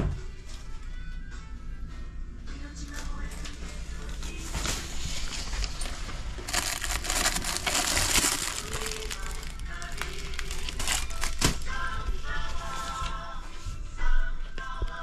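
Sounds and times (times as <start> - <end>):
plastic wrapping crinkling: 3.3 - 13.0.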